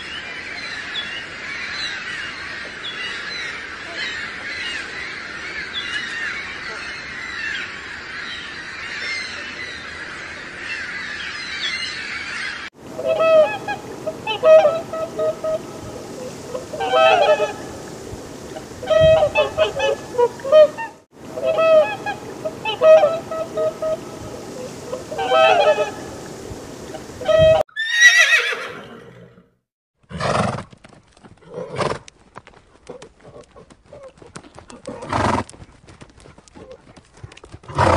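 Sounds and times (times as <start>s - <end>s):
waterfowl honking: 12.3s - 27.6s
steady hiss: 12.8s - 27.6s
horse whinnying: 27.4s - 29.4s.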